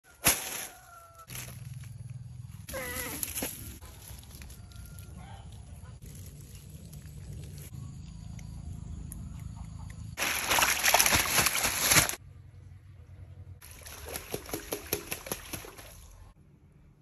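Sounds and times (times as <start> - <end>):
quick splashes in water: 10.2 - 12.2, 13.6 - 16.1.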